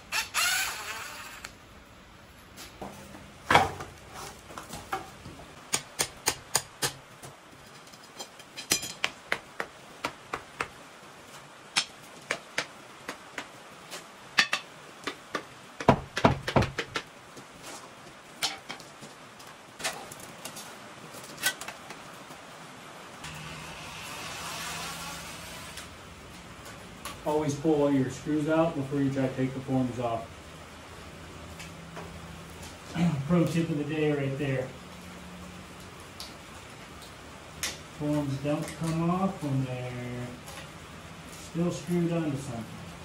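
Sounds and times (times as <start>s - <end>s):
cordless drill running: 0.1s - 1.5s
wooden boards knocking and clattering: 2.8s - 7.4s, 14.3s - 17.1s, 18.4s - 19.2s.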